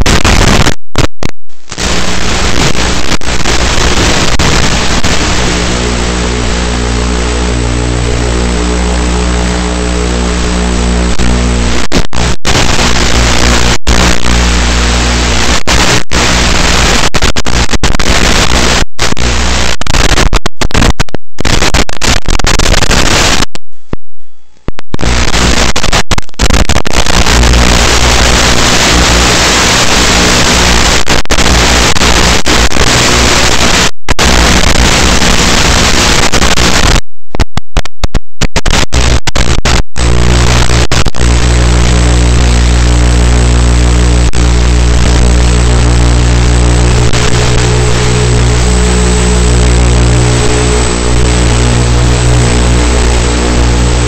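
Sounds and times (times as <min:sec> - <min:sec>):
low buzz: 0:00.0 - 0:19.7, 0:33.0 - 0:54.0
static hiss: 0:00.0 - 0:23.6, 0:24.6 - 0:54.0.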